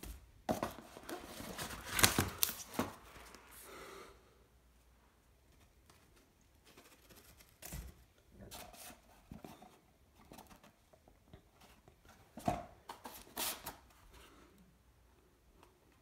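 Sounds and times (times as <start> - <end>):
cardboard boxes rustling and knocking: 0.0 - 3.1.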